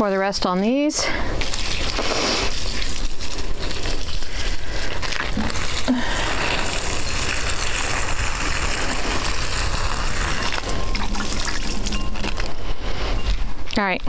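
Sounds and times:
water pouring from watering can: 1.4 - 12.5.

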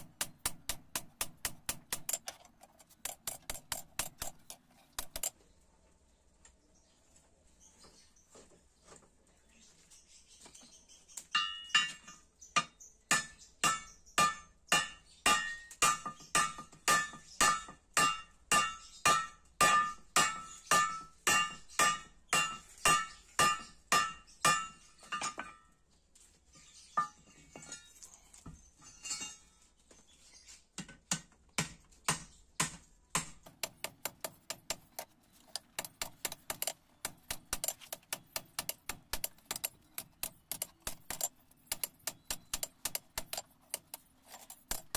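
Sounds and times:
hammer striking steel on anvil: 11.4 - 25.6.

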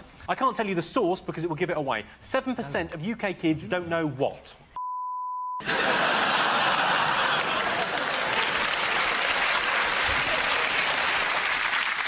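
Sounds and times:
steady beep tone: 4.8 - 5.6
studio audience applause: 5.6 - 12.0.

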